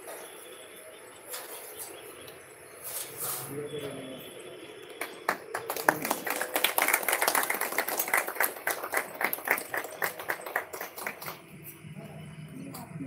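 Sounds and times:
people clapping: 4.8 - 11.8.

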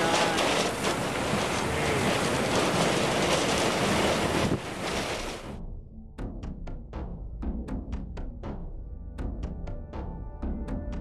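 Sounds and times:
rain and debris striking car: 0.0 - 5.5
tornado winds rushing: 0.0 - 5.6.

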